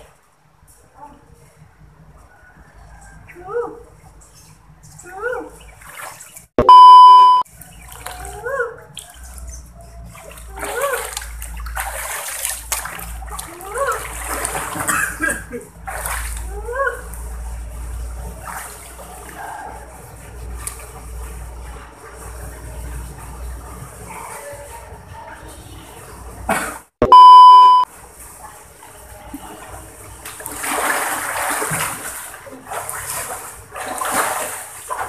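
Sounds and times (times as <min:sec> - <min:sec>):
water sloshing and splashing: 0:02.7 - 0:26.4, 0:27.2 - 0:35.0
single-tone beep: 0:06.6 - 0:07.4, 0:27.0 - 0:27.9.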